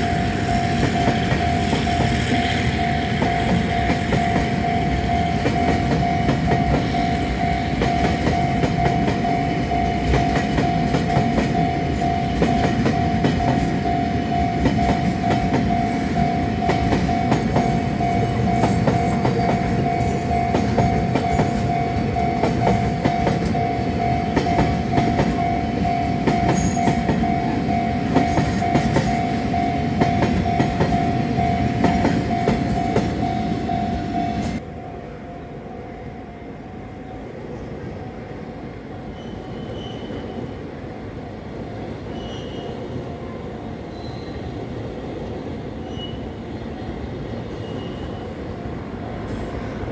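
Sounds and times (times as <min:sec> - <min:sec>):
freight train wheels clicking: 0:00.0 - 0:34.6
crossing warning bell ringing: 0:00.0 - 0:44.4, 0:47.4 - 0:48.6.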